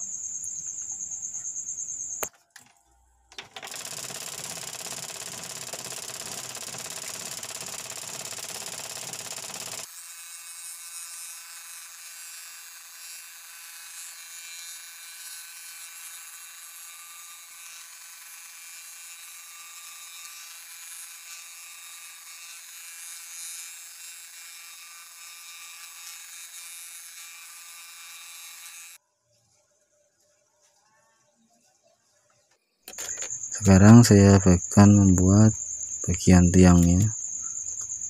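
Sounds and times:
scroll saw cutting wood: 3.4s - 29.0s, 32.9s - 38.0s.

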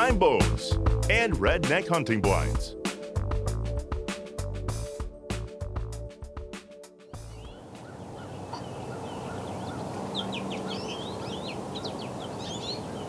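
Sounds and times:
music: 0.0s - 7.9s
songbirds chirping: 7.0s - 13.0s
steady outdoor hiss: 7.0s - 13.0s.

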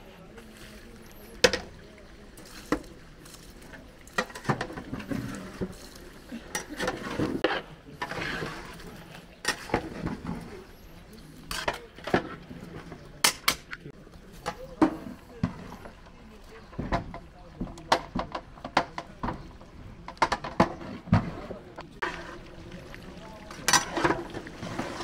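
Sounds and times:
metal pots and utensils clattering: 1.3s - 1.8s, 2.4s - 10.7s, 11.4s - 13.7s, 14.3s - 16.1s, 16.7s - 25.0s.

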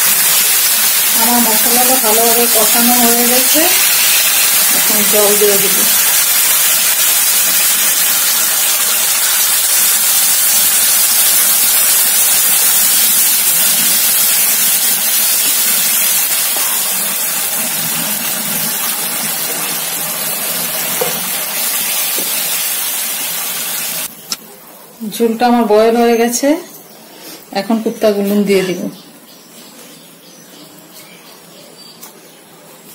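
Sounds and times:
paste sizzling in frying pan: 0.0s - 24.3s.

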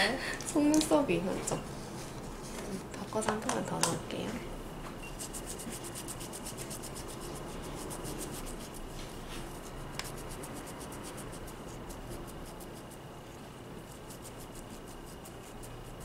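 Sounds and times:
cotton pad scrubbing fingernail: 5.2s - 13.0s, 13.8s - 16.0s.

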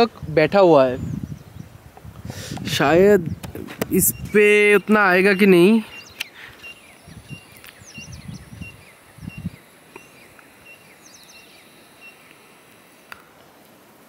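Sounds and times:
bird repeating high note: 3.9s - 6.3s.

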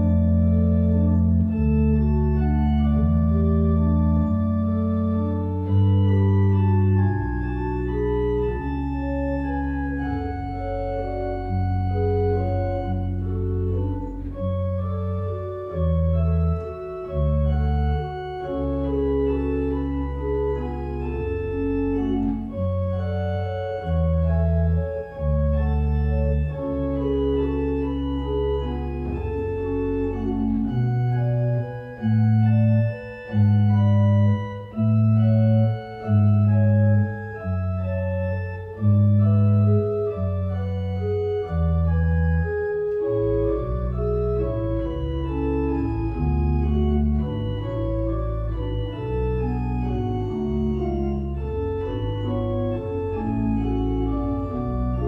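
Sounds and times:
church organ playing slow chords: 0.0s - 55.0s.

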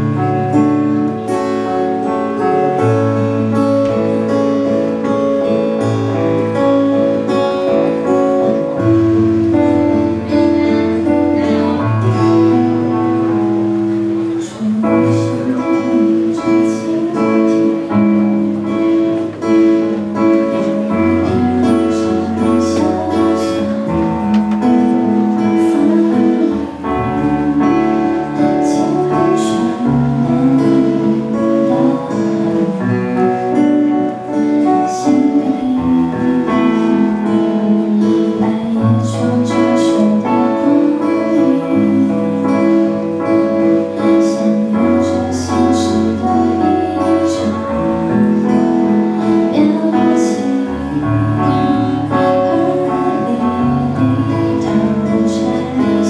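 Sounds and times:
live band playing pop song: 0.0s - 56.0s
woman singing: 7.6s - 56.0s.

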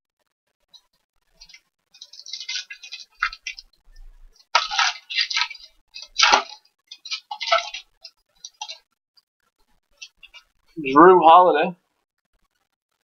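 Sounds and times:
foil wrapper crinkling: 1.4s - 3.6s, 4.4s - 8.8s.

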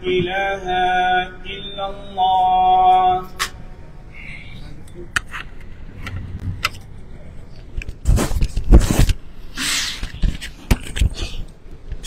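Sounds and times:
short hiss: 9.5s - 10.1s.

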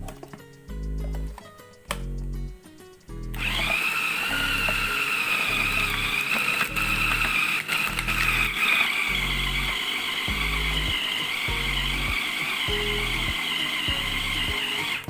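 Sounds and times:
background music with bass beat: 0.0s - 3.4s, 10.3s - 14.6s
food processor motor running: 3.4s - 15.0s.

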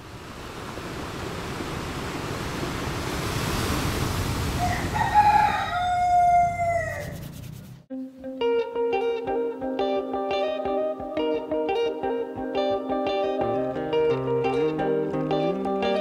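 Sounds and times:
surf washing on beach: 0.0s - 5.6s
rooster crowing: 4.5s - 7.3s.

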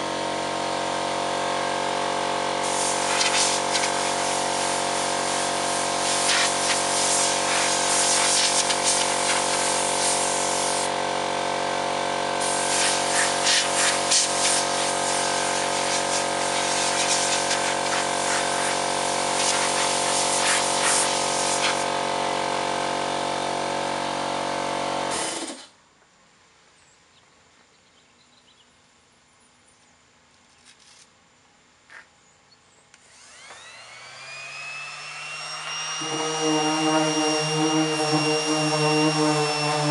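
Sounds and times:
electric sander whining: 0.0s - 25.5s, 33.0s - 39.9s
air compressor motor running: 0.0s - 25.8s, 33.0s - 39.9s
air blow gun hissing: 2.5s - 11.0s, 12.4s - 22.2s.

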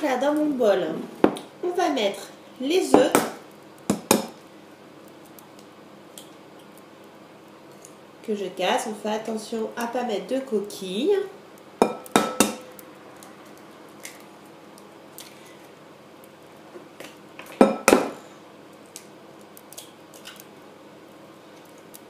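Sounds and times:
eggs knocked on glass bowl: 11.8s - 12.6s.

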